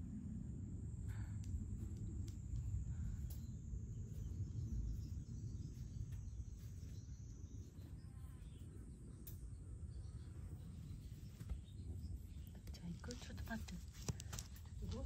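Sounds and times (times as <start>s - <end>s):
low rumble: 0.0s - 15.0s
faint clicks: 9.2s - 9.5s.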